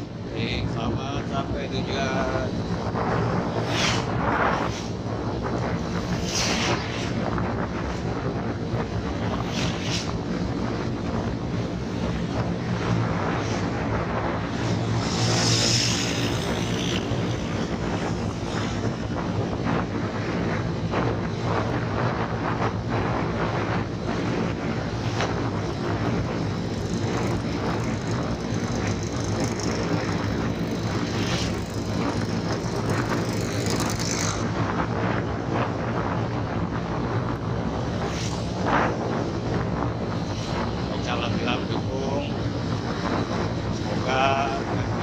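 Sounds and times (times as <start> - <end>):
wind rushing over microphone: 0.0 - 45.0
motorcycle engine running: 26.1 - 34.5.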